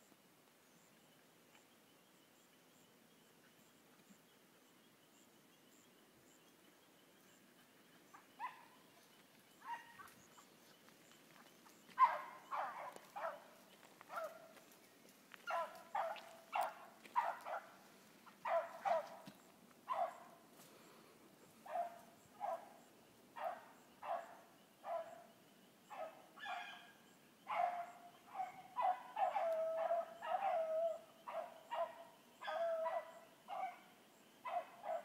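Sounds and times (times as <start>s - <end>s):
hounds barking: 8.1s - 9.0s, 9.6s - 10.5s, 11.9s - 14.6s, 15.4s - 20.4s, 21.6s - 25.3s, 25.9s - 35.0s.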